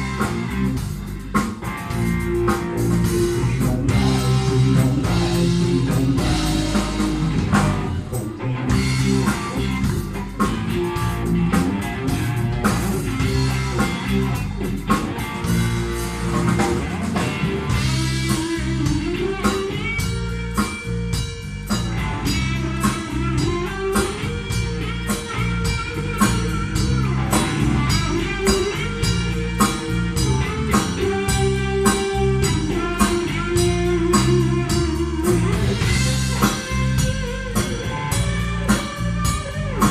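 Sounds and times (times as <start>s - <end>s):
bending electric guitar notes: 0.0s - 39.9s
live rock band playing: 0.0s - 39.9s.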